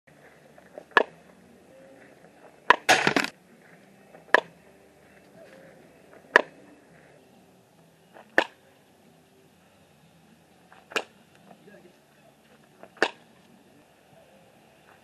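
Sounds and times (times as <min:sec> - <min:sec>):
bat cracking softballs: 0:00.7 - 0:01.2, 0:02.6 - 0:03.4, 0:08.2 - 0:08.6, 0:10.8 - 0:11.2, 0:12.8 - 0:13.3
short rattling noise: 0:02.9 - 0:03.3.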